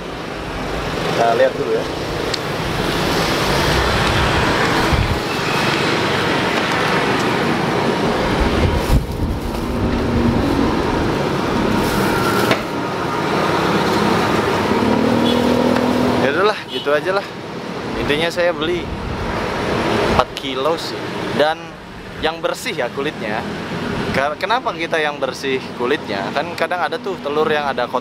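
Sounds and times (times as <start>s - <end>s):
passing vehicle engine hum: 0.0s - 16.4s
roadside traffic noise: 0.0s - 28.0s.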